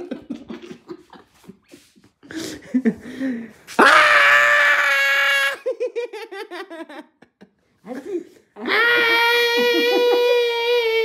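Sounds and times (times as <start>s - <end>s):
shuffling: 0.1s - 3.8s
person screaming: 3.8s - 5.6s, 8.6s - 11.0s.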